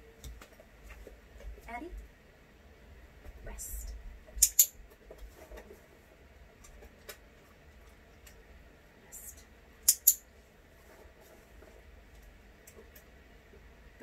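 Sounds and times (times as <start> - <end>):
dog-training clicker clicking: 4.4 - 4.7, 9.9 - 10.2.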